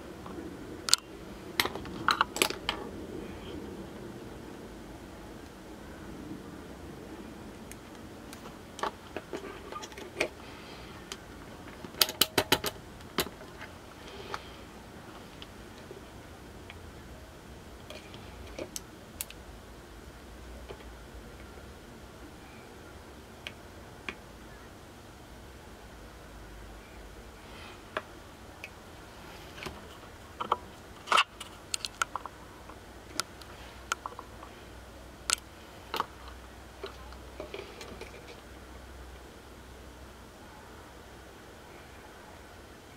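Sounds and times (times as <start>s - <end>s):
multimeter clicks: 0.9s - 2.8s
hands handling electronics gear: 7.6s - 16.0s.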